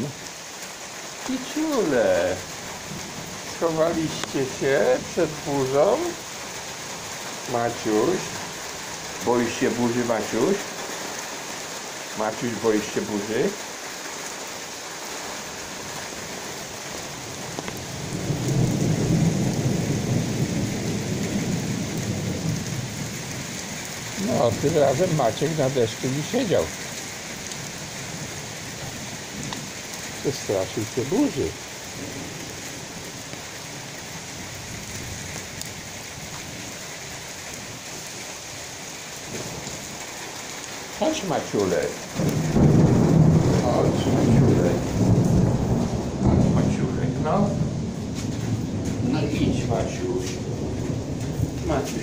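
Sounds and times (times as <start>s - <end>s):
steady rain falling: 0.0s - 52.0s
low rumble of thunder: 1.4s - 10.8s, 15.5s - 52.0s.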